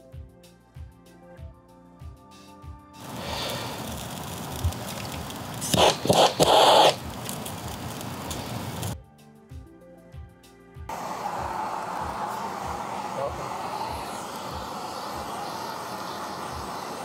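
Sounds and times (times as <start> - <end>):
background music: 0.0 - 3.7, 9.0 - 15.9
gas torch hissing: 3.0 - 9.0, 10.9 - 17.0
rush of flame: 3.0 - 9.0, 10.9 - 17.0.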